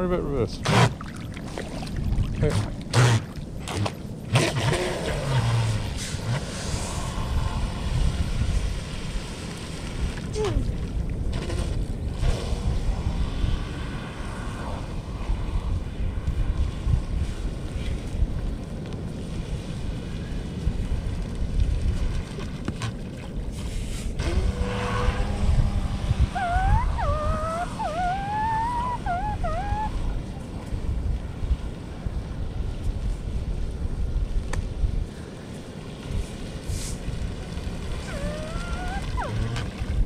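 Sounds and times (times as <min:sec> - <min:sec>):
wind buffeting microphone: 0:00.0 - 0:40.0
electric model boat on water: 0:03.2 - 0:15.4, 0:23.6 - 0:29.8.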